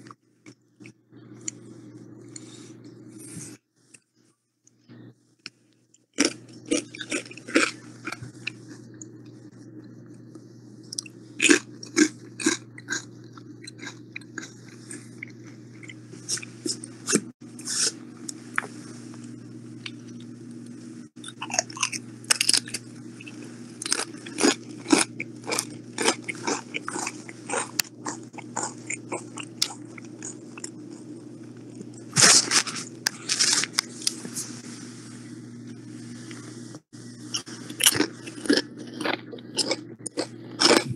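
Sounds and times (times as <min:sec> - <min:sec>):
steady low hum: 0:00.0 - 0:40.9
crunching and chewing chips: 0:06.0 - 0:09.4, 0:10.8 - 0:20.3, 0:21.2 - 0:34.4, 0:37.3 - 0:40.9.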